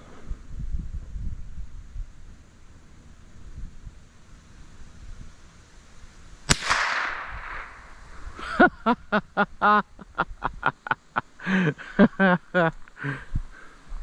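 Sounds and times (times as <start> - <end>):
rifle shot with echo: 6.5 - 8.0.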